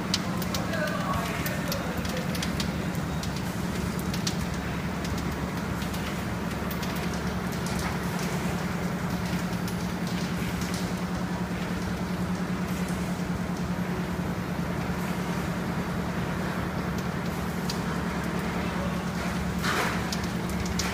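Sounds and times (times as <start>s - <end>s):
light clicks and ticks: 0.1s - 6.1s.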